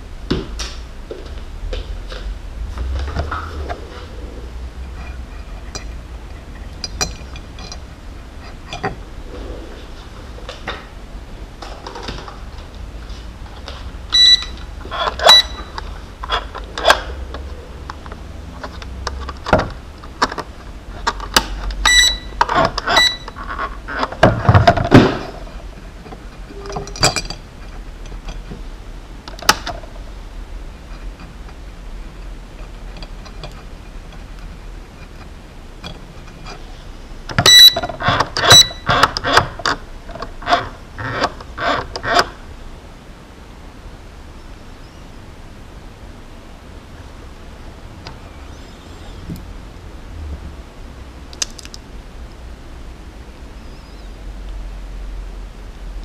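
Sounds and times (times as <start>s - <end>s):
short high-pitched beeps: 14.1s - 14.6s, 15.2s - 15.7s, 21.8s - 23.4s, 37.5s - 38.9s.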